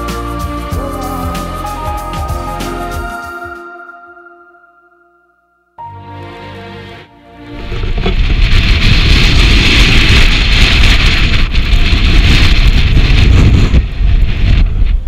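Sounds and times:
strong wind buffeting microphone: 7.6s - 15.0s.

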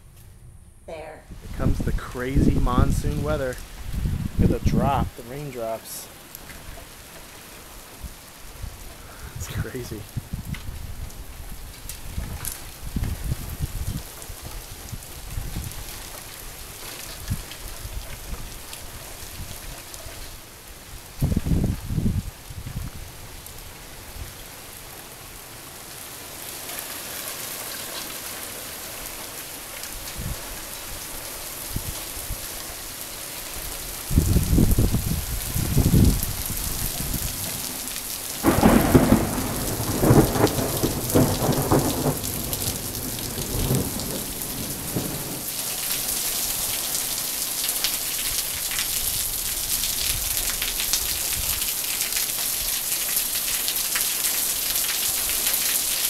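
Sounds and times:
rain falling: 0.9s - 56.0s
thunder rumbling: 1.3s - 6.0s, 34.1s - 45.6s.

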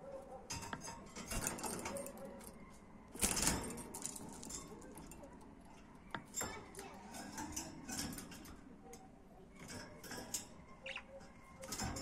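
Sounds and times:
budgerigars twittering: 10.8s - 11.2s.

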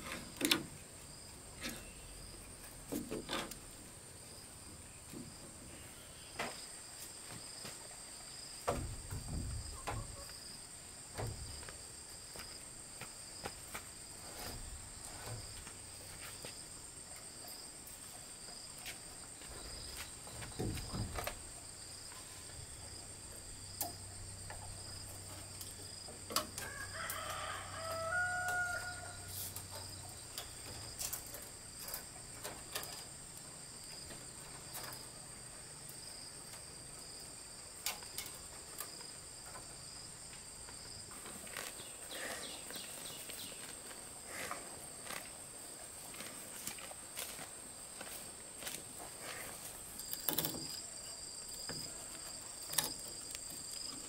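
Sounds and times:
high insect drone: 0.0s - 54.0s
dull thuds: 8.6s - 10.2s, 19.4s - 21.5s
rooster crowing: 26.6s - 29.4s.

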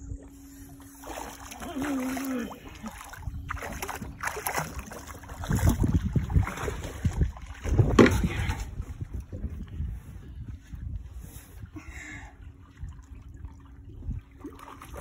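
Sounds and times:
wind rumbling on microphone: 0.0s - 15.0s
fish splashing in water: 0.8s - 7.7s.

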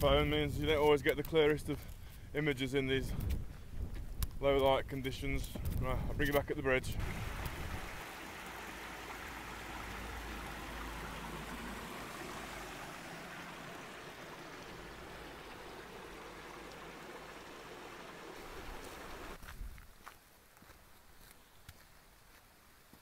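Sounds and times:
stream running over rocks: 6.3s - 19.4s.

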